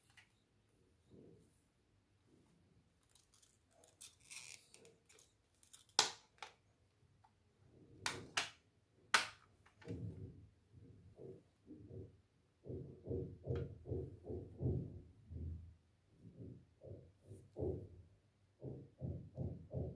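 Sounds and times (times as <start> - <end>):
soft plastic rustle: 2.3 - 6.0.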